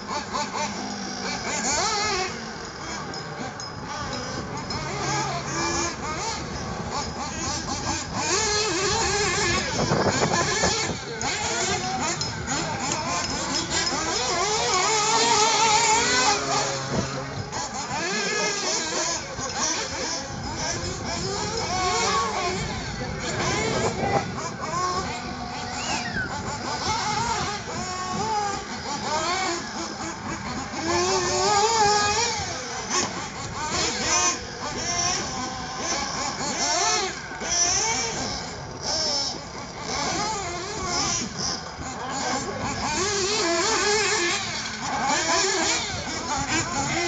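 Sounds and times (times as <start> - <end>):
model car engines buzzing and revving: 0.0 - 47.0.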